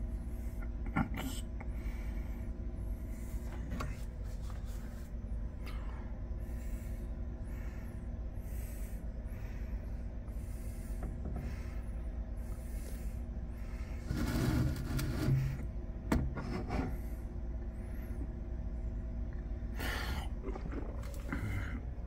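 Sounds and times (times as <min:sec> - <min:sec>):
steady low hum: 0:00.0 - 0:22.0
rustling scrapes: 0:03.9 - 0:05.2, 0:13.9 - 0:15.6.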